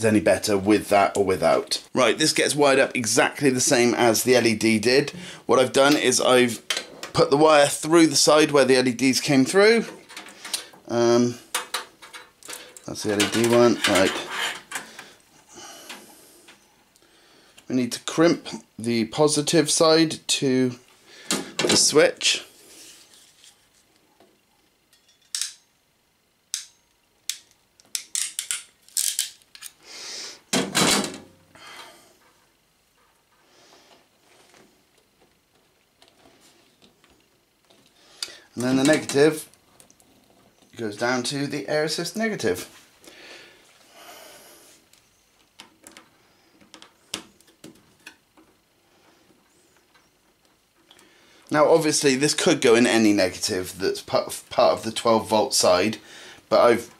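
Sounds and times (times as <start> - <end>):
wires being handled: 9.1 - 17.0, 22.8 - 24.2, 27.3 - 29.8.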